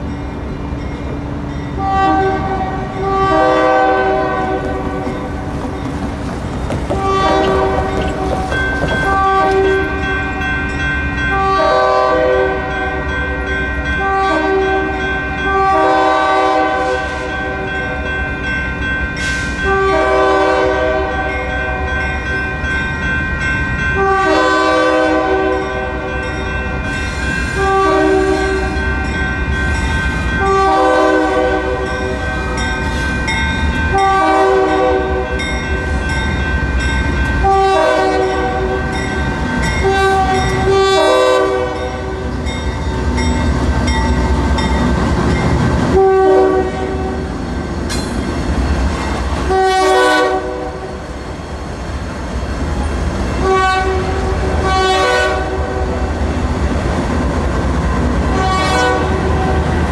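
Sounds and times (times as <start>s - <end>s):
train rumble: 0.0s - 59.9s
locomotive air horn blasts: 1.8s - 5.0s, 7.0s - 8.2s, 9.1s - 10.4s, 11.3s - 13.0s, 14.0s - 17.7s, 19.6s - 21.5s, 24.0s - 26.1s, 27.5s - 28.8s, 30.4s - 32.0s, 33.9s - 35.4s, 37.4s - 39.0s, 39.8s - 42.2s, 45.9s - 47.2s, 49.4s - 50.9s, 53.4s - 55.8s, 58.3s - 59.8s.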